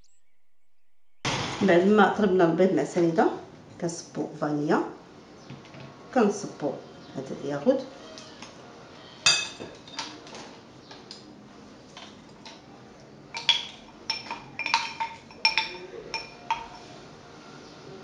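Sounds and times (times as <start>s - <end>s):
ringing glass clinks: 13.4s - 16.9s
spoon scraping glass jar: 14.1s - 17.0s.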